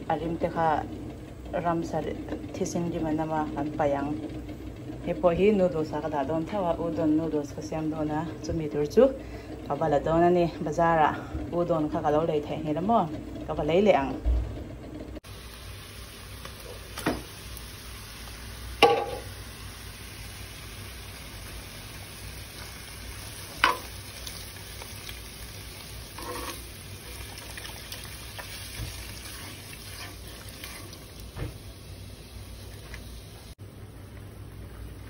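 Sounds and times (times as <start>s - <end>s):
meat sizzling in a pan: 15.3s - 33.6s
spoon knocking against pan: 18.8s - 19.3s, 23.6s - 23.9s.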